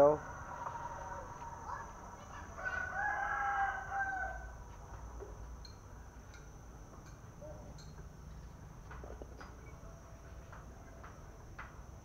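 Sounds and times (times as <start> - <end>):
rooster crowing: 0.0 - 4.6.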